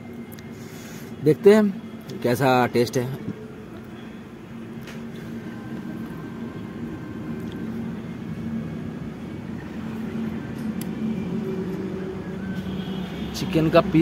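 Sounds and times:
low engine hum: 3.1 - 14.0.

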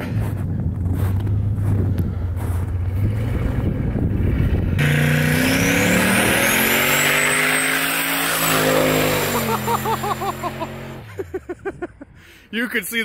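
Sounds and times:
low rumble: 0.0 - 4.8
pickup engine accelerating: 0.1 - 11.3.

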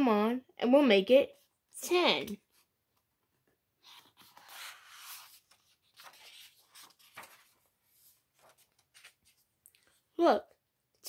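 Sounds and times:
paper page rustling: 3.8 - 10.0.

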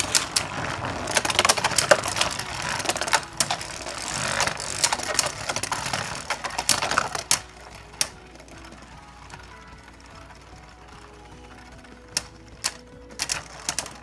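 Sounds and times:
spinning tops clacking: 0.0 - 14.0
spinning tops grinding whir: 0.0 - 14.0.

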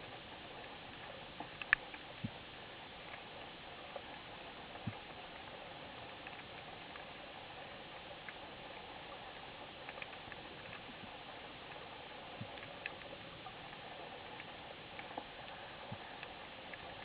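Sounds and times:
sharp clicks and crackles: 0.6 - 2.4, 6.1 - 7.2, 9.2 - 17.0.

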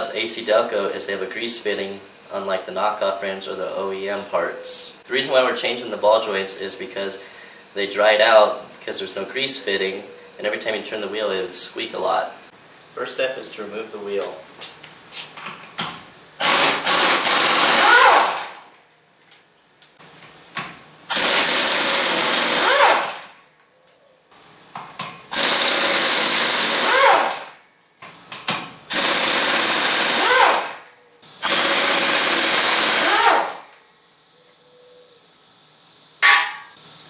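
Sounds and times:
pneumatic impact wrench hammering: 15.6 - 18.7, 20.6 - 23.4, 24.7 - 33.7, 36.2 - 36.8.

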